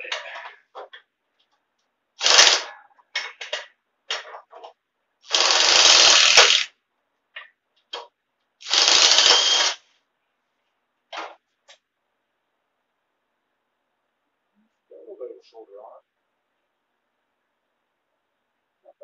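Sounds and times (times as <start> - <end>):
impact driver hammering: 8.6 - 9.8.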